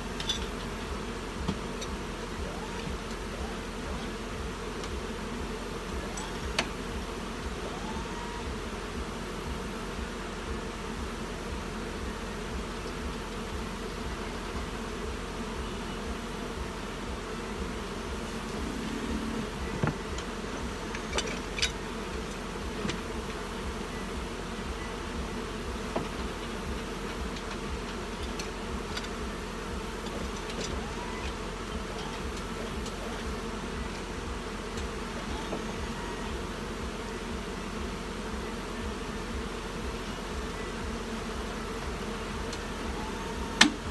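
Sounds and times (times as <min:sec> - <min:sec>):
low throb: 0:00.0 - 0:20.9
bees buzzing: 0:00.0 - 0:43.9.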